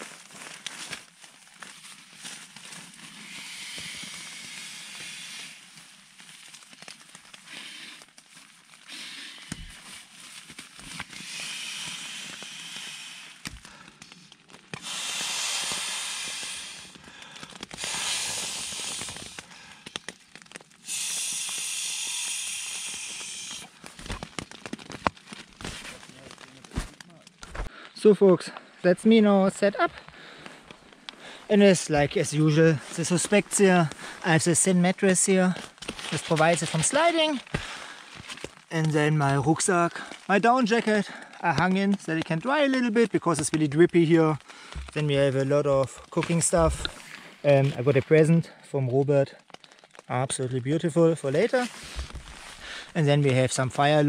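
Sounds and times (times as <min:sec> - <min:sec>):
air hissing: 0:14.8 - 0:16.9, 0:17.8 - 0:19.4, 0:20.8 - 0:23.7
nylon rustling: 0:51.6 - 0:52.9.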